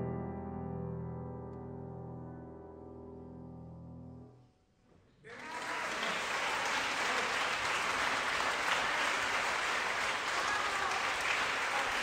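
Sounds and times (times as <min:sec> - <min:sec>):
audience applause: 0:05.3 - 0:12.0.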